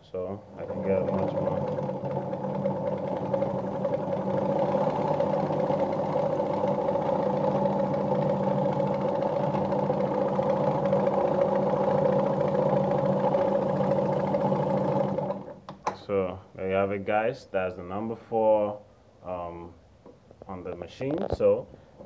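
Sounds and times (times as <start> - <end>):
sewing machine running: 0.6 - 15.6.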